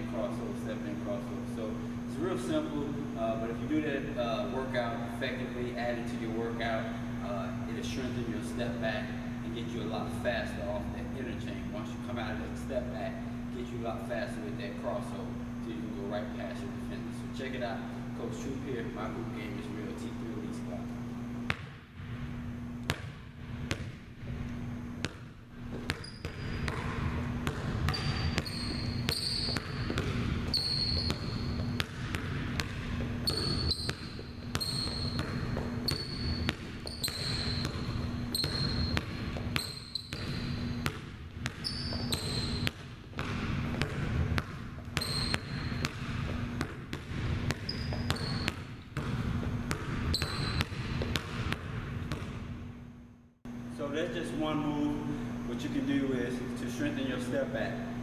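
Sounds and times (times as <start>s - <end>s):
basketball bouncing on wooden floor: 21.5s - 22.2s, 22.8s - 24.0s, 25.0s - 52.5s
sneakers squeaking on wood: 25.6s - 46.6s, 47.3s - 51.5s.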